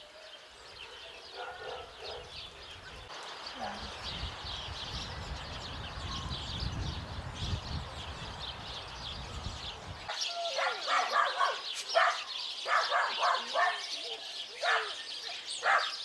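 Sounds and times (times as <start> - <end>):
small birds chirping: 0.0 - 16.0
dogs barking: 0.8 - 2.4, 10.4 - 16.0.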